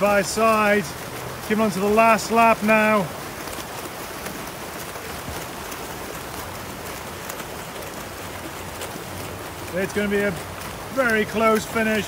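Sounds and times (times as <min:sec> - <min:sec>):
swimmers splashing water: 0:00.0 - 0:12.0.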